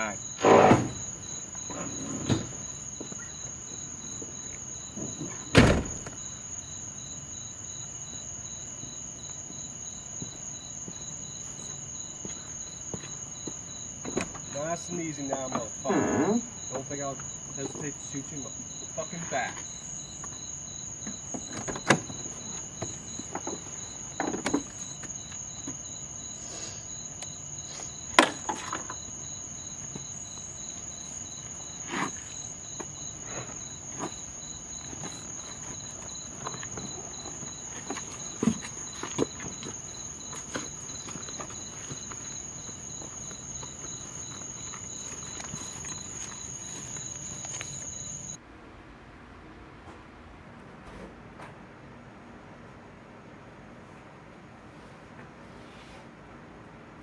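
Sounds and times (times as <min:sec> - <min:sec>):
crickets chirping: 0:00.0 - 0:48.4
rustling: 0:29.9 - 0:48.4.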